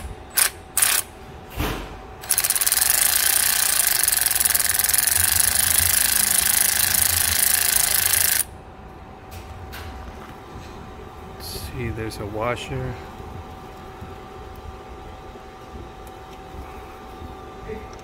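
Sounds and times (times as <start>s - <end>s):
power ratchet running: 0.0s - 1.1s, 2.2s - 8.5s
ratchet clicks: 0.3s - 1.1s, 2.2s - 8.5s.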